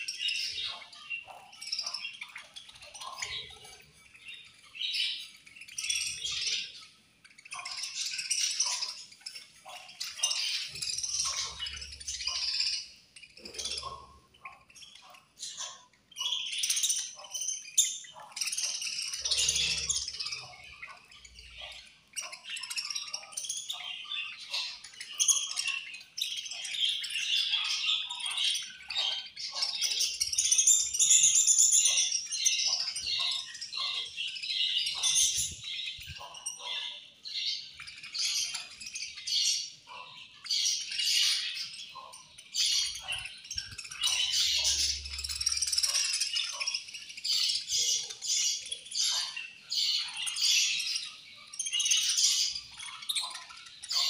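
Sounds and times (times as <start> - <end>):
budgerigars chirping: 0.0 - 54.0.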